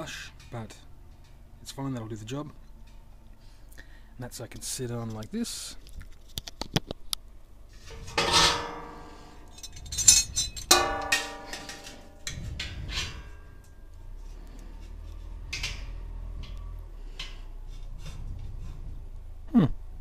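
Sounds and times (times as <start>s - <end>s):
metal basket clanking against kettle: 7.9s - 13.7s
ringing metal knocks: 8.1s - 13.9s.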